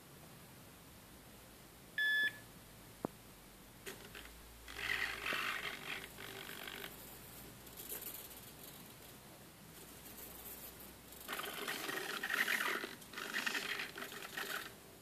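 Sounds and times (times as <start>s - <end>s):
short electronic beep: 2.0s - 2.4s
servos whirring and buzzing: 4.1s - 6.9s, 11.2s - 14.8s.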